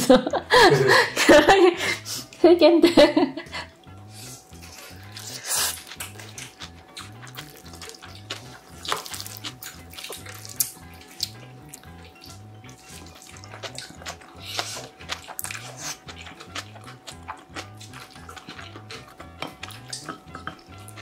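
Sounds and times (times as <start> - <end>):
background music with bass: 0.0 - 21.0
wet chewing and smacking: 3.8 - 21.0.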